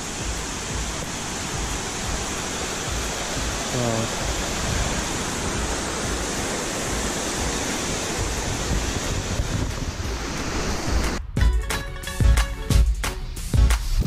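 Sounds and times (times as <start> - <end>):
stream rushing over rocks: 0.0 - 11.2
music with a beat: 0.2 - 2.3, 11.1 - 14.0.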